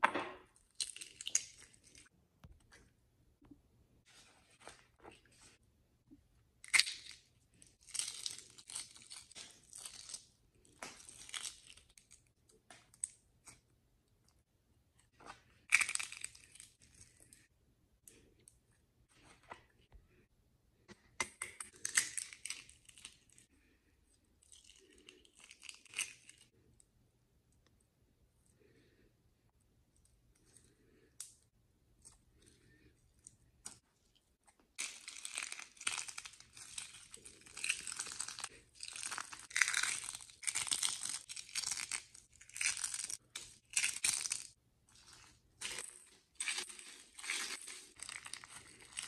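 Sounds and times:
eggshells crackling and crunching: 0:00.6 - 0:02.2, 0:06.6 - 0:13.6, 0:15.6 - 0:17.4, 0:21.3 - 0:23.5, 0:24.4 - 0:26.6, 0:34.7 - 0:49.0.

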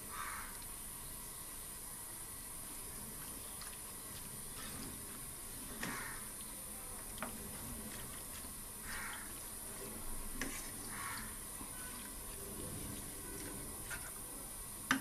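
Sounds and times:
spatula scraping food in pan: 0:03.9 - 0:06.2, 0:07.2 - 0:14.3.

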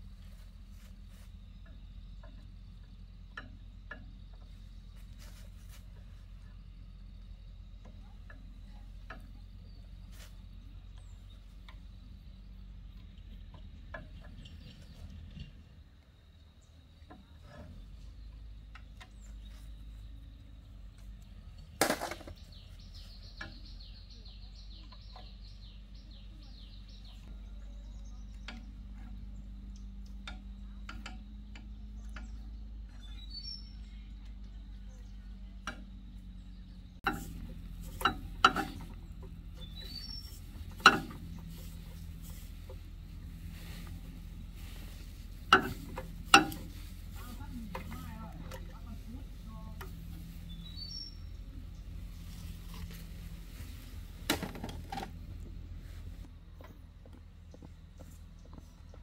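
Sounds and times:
low mechanical hum: 0:00.0 - 0:59.0
high bird chirp: 0:31.9 - 0:34.1, 0:39.0 - 0:41.8, 0:50.4 - 0:52.5.

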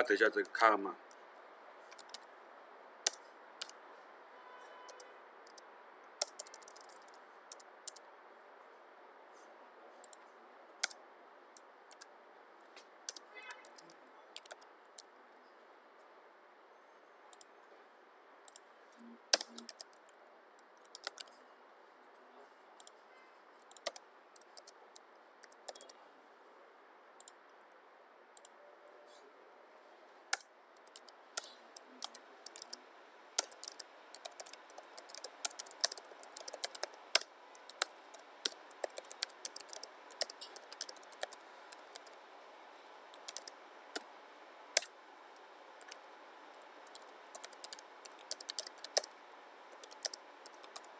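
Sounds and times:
computer keyboard typing: 0:01.9 - 0:02.3, 0:03.0 - 0:03.8, 0:04.9 - 0:08.0, 0:10.8 - 0:11.0, 0:11.9 - 0:15.1, 0:19.3 - 0:21.4, 0:23.6 - 0:26.0, 0:30.3 - 0:32.8, 0:33.4 - 0:42.5, 0:43.1 - 0:44.1, 0:45.8 - 0:50.9.

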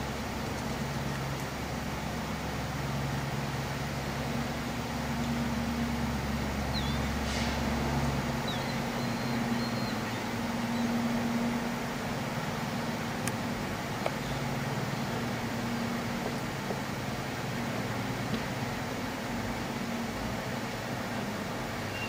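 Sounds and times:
outdoor noise: 0:00.0 - 0:22.0
ship engine drone: 0:00.0 - 0:22.0
faint high chirps: 0:08.4 - 0:11.0, 0:21.8 - 0:22.0.

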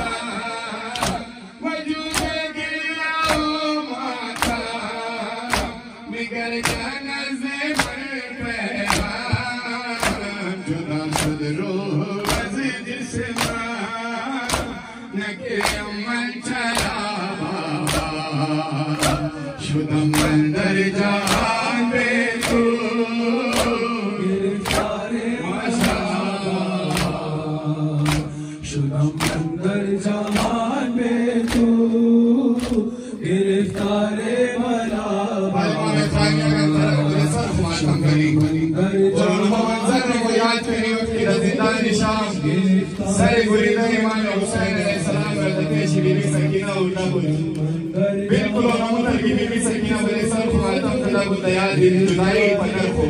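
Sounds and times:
men chanting in unison: 0:00.0 - 0:53.0
hands slapping chests: 0:00.9 - 0:01.4, 0:02.0 - 0:02.5, 0:03.2 - 0:03.6, 0:04.3 - 0:05.8, 0:06.6 - 0:07.0, 0:07.7 - 0:08.1, 0:08.8 - 0:10.4, 0:11.1 - 0:11.6, 0:12.2 - 0:12.6, 0:13.3 - 0:13.8, 0:14.4 - 0:14.8, 0:15.5 - 0:16.0, 0:16.7 - 0:17.0, 0:17.8 - 0:20.5, 0:21.2 - 0:21.7, 0:22.3 - 0:22.8, 0:23.4 - 0:23.9, 0:24.6 - 0:25.1, 0:25.7 - 0:26.2, 0:26.8 - 0:27.4, 0:28.0 - 0:28.4, 0:29.1 - 0:29.6, 0:30.2 - 0:30.7, 0:31.3 - 0:31.8, 0:32.5 - 0:32.9, 0:33.7 - 0:34.0.

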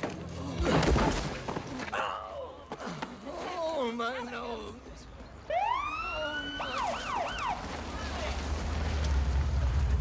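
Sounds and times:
police siren wail and yelps: 0:05.5 - 0:07.6
vehicle engine rumble: 0:06.7 - 0:10.0.

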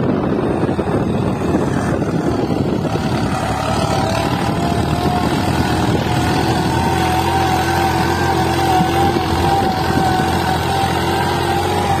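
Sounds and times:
engine whine: 0:00.0 - 0:12.0
tractor diesel engine labouring: 0:00.0 - 0:12.0.

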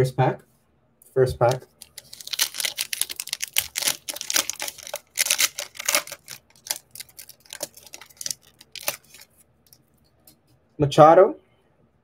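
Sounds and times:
foil wrapper tearing and crinkling: 0:01.4 - 0:09.3.

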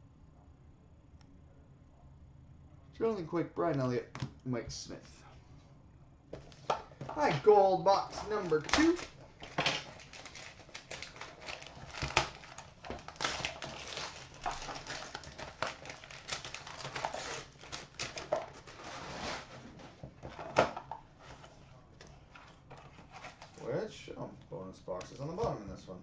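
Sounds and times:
wrapping paper tearing and crinkling: 0:07.2 - 0:19.7.

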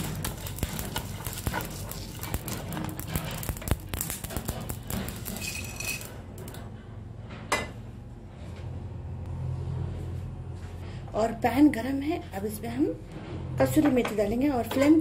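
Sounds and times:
seeds rattling in a pan: 0:00.0 - 0:06.2.

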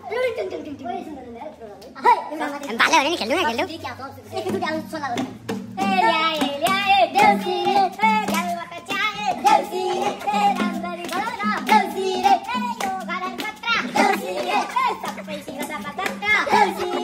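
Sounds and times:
hand drum strokes: 0:04.3 - 0:17.0
young men singing: 0:05.8 - 0:17.0
hand claps: 0:06.3 - 0:17.0.

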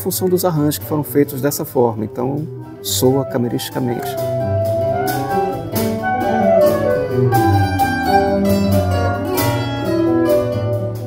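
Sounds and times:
clarinet melody: 0:02.6 - 0:11.0
nylon-string guitar plucking: 0:02.6 - 0:11.0.

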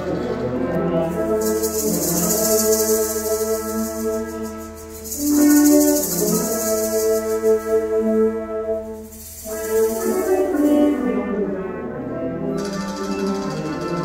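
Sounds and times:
high shimmer: 0:01.2 - 0:08.0, 0:08.8 - 0:11.4.

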